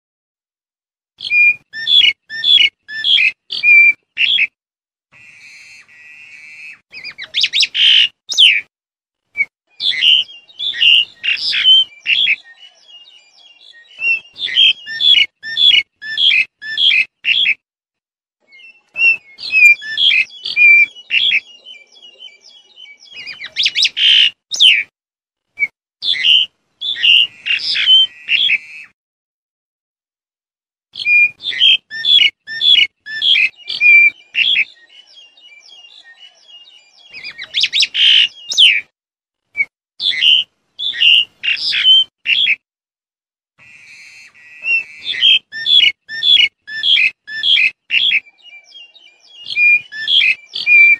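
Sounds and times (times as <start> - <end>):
short whistled bird tones: 1.2 - 4.6, 9.3 - 17.6, 18.5 - 24.9, 25.6 - 29.0, 30.9 - 38.9, 39.5 - 42.6, 43.6 - 50.9
starling calling sharp notes: 1.2 - 8.7, 9.4 - 17.6, 18.5 - 24.9, 25.6 - 28.9, 31.0 - 38.9, 39.5 - 42.6, 43.6 - 50.9.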